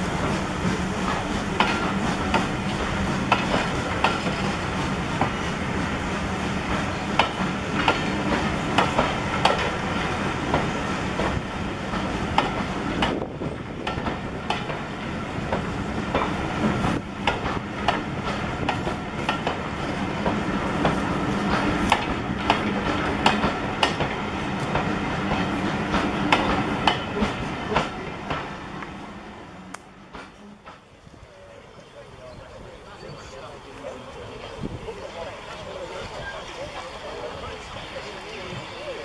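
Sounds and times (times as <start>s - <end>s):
train wheels clicking over rail joints: 0.0s - 29.0s, 29.7s - 31.0s.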